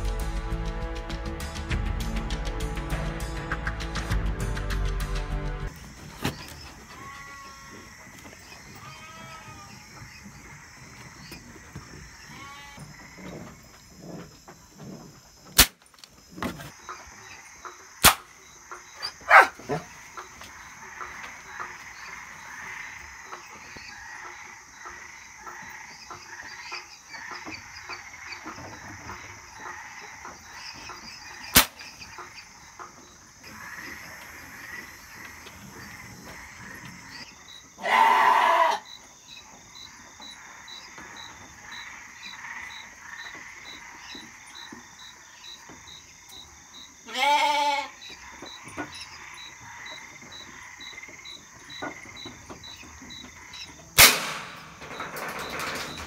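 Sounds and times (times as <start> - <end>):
busy faint chirping: 5.7 - 56.0
livestock bleating: 6.9 - 7.9, 8.6 - 10.0, 12.2 - 12.9, 37.8 - 38.9, 47.0 - 48.0
air pistol shot: 15.6 - 15.8, 18.0 - 18.3, 31.5 - 31.8, 54.0 - 54.8.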